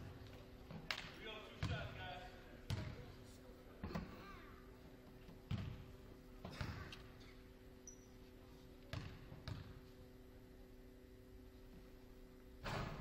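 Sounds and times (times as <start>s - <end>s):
faint steady hum: 0.0s - 13.0s
basketball bouncing on hardwood floor: 2.7s - 3.0s, 5.5s - 6.8s, 8.9s - 9.8s.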